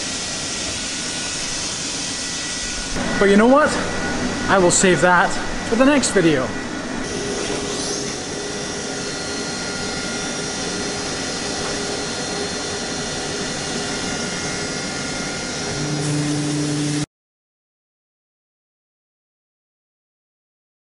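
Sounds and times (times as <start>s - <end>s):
machine whirring: 0.0s - 17.1s
faint high whines: 0.6s - 17.1s
low pitched hum: 2.5s - 17.1s.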